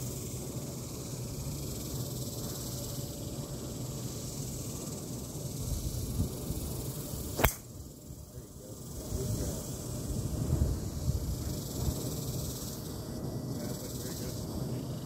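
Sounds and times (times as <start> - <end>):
steady outdoor hiss: 0.0 - 15.0
golf club striking ball: 7.4 - 7.7.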